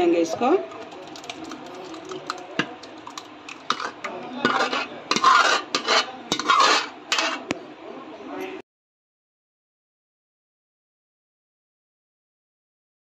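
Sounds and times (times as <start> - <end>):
metal spoon scraping custard: 0.6 - 7.5
spoon clinking on dish: 0.7 - 6.6.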